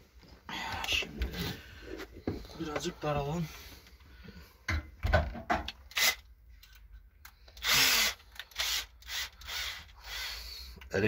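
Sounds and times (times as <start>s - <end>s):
cordless drill bursts: 5.9s - 6.2s, 7.6s - 10.7s.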